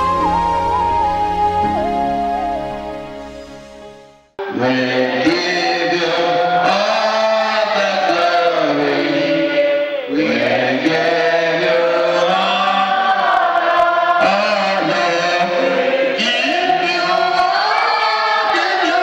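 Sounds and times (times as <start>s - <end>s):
voices chanting held notes: 4.4s - 19.0s.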